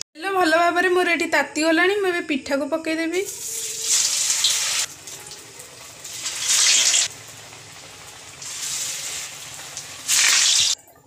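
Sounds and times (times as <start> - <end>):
hot oil sizzling: 3.2 - 10.8.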